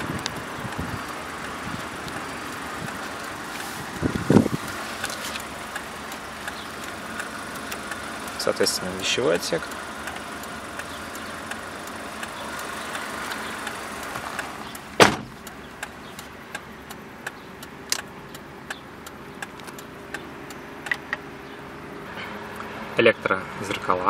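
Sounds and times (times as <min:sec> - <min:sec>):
faint regular ticks: 0:00.1 - 0:14.8, 0:15.4 - 0:20.9
hiss of outside noise: 0:03.2 - 0:05.4
car door thump: 0:15.0 - 0:15.4.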